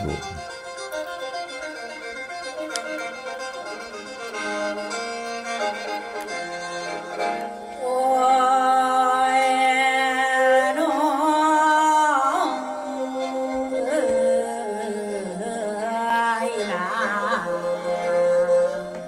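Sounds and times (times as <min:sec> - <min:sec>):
low drone: 0:00.0 - 0:00.5.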